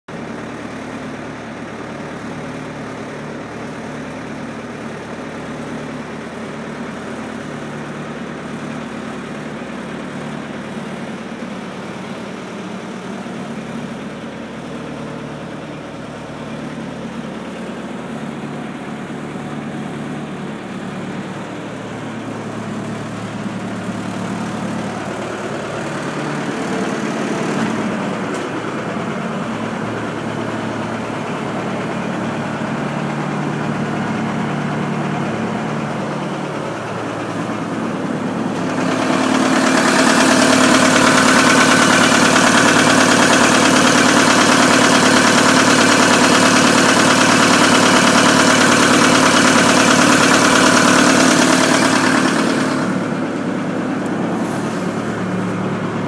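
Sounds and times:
marine diesel engine running: 0.1s - 56.0s.

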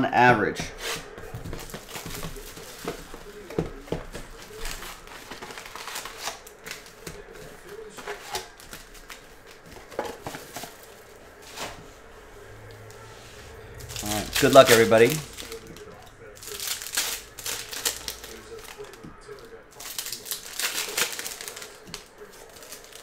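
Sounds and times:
cardboard taps and scrapes: 0.8s - 10.8s
foil wrapper crinkling: 0.9s - 11.8s, 13.8s - 23.0s.

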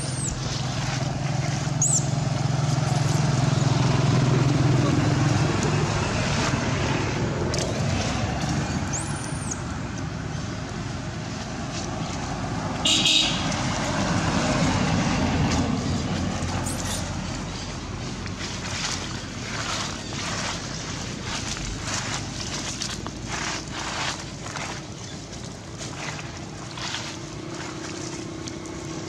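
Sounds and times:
outdoor traffic rumble: 0.0s - 29.0s
thin high chirp: 1.8s - 2.1s.

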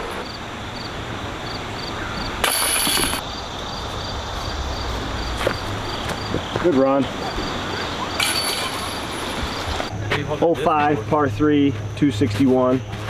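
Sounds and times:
disc striking basket chains: 2.4s - 3.2s, 8.1s - 9.9s.

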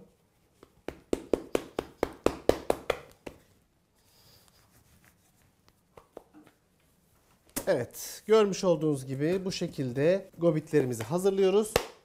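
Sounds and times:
hand slapping bread dough: 0.5s - 3.6s, 5.7s - 6.6s, 10.5s - 12.0s
faint handling sounds: 3.4s - 7.6s.

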